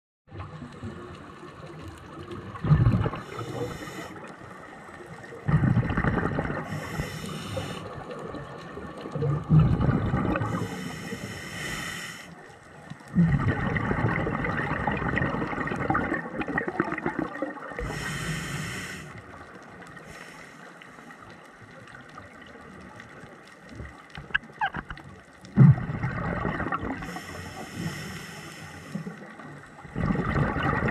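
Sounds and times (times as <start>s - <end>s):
underwater bubbling and gurgling: 0.3s - 30.9s
regulator breath hiss: 3.2s - 4.2s, 6.7s - 8.0s, 10.5s - 12.4s, 17.8s - 19.2s, 20.0s - 21.2s, 27.0s - 29.2s.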